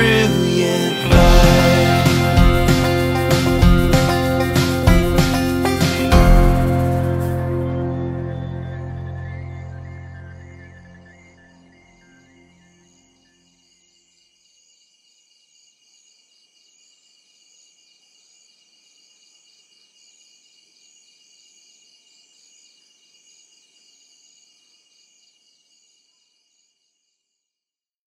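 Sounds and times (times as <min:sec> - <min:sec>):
crickets and insects chirping: 0:09.7 - 0:27.3.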